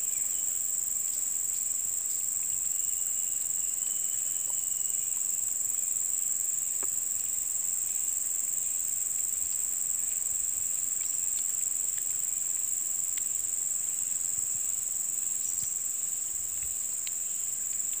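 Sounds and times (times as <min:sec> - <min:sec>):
insects droning: 0:00.0 - 0:18.0
faint clicks: 0:09.1 - 0:13.5, 0:16.5 - 0:18.0.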